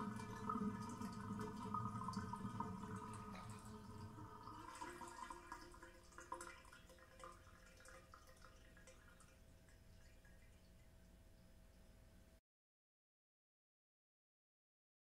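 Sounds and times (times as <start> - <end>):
bathtub draining gurgles: 0.0 - 11.8
small water drips: 0.0 - 12.0.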